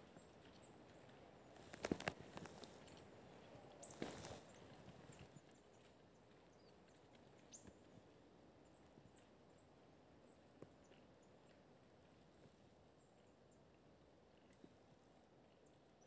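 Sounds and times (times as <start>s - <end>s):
faint clicks: 0.5s - 3.1s
faint small bird chirps: 3.7s - 8.0s.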